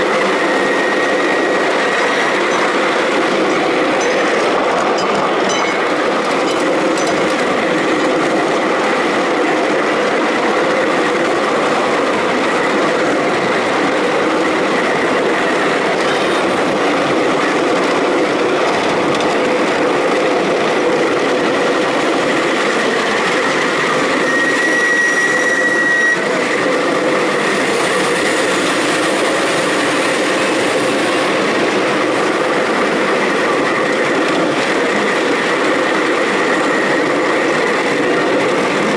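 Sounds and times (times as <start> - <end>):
small train wheels rumbling on rails: 0.0 - 38.9
brief high squeal: 24.1 - 26.3.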